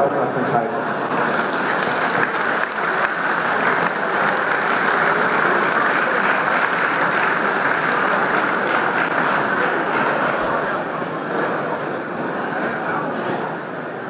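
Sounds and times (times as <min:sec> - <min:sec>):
audience applauding: 0:01.0 - 0:12.0.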